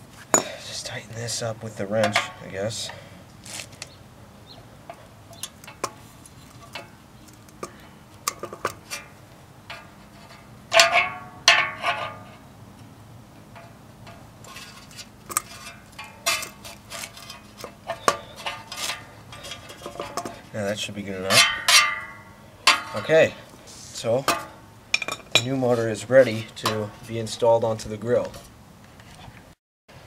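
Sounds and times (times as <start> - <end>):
ringing metal clanks: 0.3 - 0.6, 10.7 - 12.3, 21.2 - 23.3, 24.2 - 27.1.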